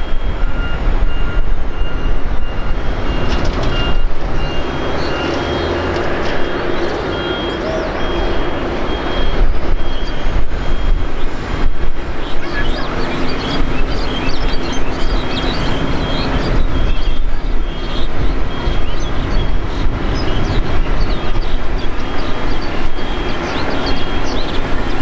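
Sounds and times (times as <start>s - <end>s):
jet engines rumbling: 0.0s - 25.0s
high chirps: 4.3s - 11.0s, 12.2s - 25.0s.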